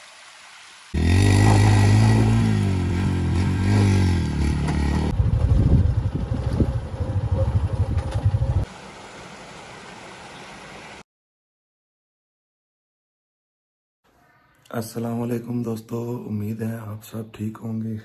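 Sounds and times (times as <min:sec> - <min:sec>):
small waterfall rushing: 0:00.0 - 0:02.0, 0:08.6 - 0:11.0
motorcycle engine revving: 0:01.0 - 0:08.7.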